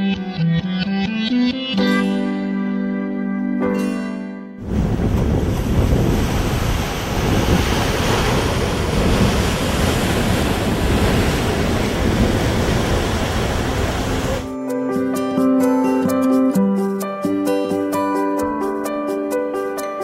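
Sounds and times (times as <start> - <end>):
waves washing against rocks: 4.6 - 14.5
wind buffeting microphone: 4.6 - 14.5.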